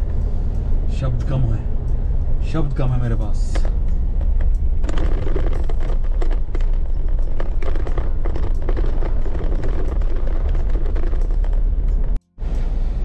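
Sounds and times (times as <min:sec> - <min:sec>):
car rumbling with crackles: 0:00.0 - 0:13.0.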